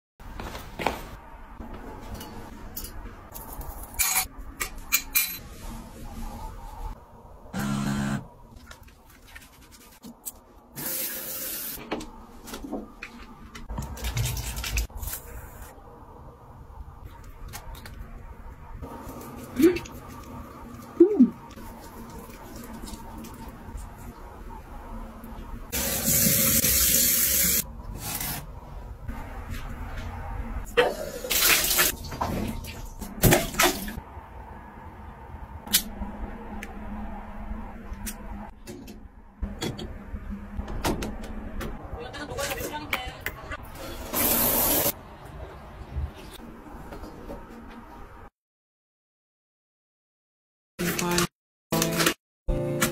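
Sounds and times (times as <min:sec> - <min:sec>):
water running from faucet: 0:10.8 - 0:11.8, 0:25.7 - 0:27.6.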